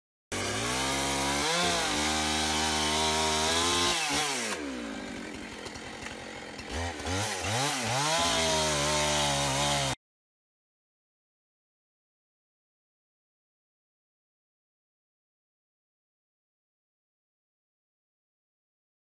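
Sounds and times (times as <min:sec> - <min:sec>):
chainsaw revving: 0:00.3 - 0:10.0.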